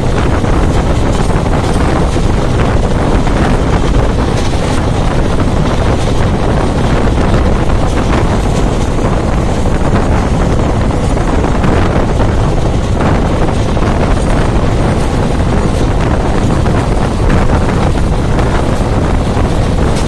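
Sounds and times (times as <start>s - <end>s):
train rumbling on track: 0.0s - 20.0s
wind buffeting microphone: 0.0s - 20.0s.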